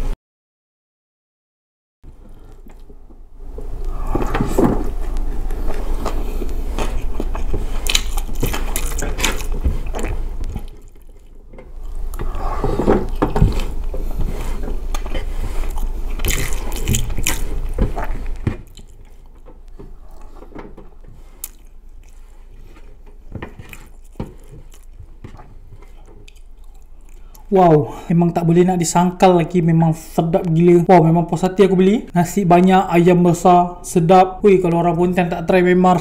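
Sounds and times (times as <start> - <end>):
person chewing: 3.6 - 27.5.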